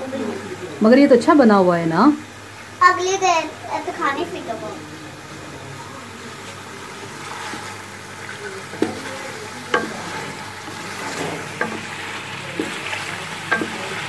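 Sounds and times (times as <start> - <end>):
curry sizzling: 0.0 - 14.0
wooden spoon knocking metal pot: 9.7 - 12.0, 13.5 - 14.0.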